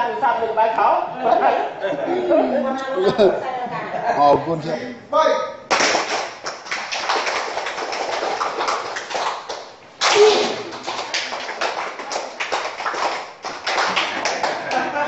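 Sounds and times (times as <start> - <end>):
group of people clapping: 5.7 - 15.0.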